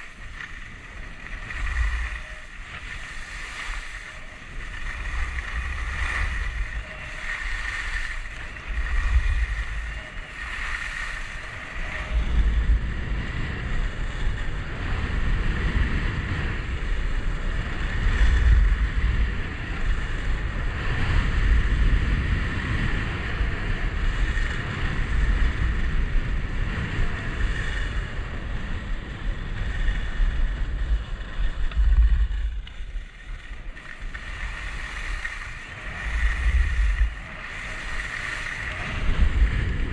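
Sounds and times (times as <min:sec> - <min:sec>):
skis scraping on packed snow: 0:00.0 - 0:12.2, 0:30.0 - 0:39.7
wind buffeting microphone: 0:00.0 - 0:39.9.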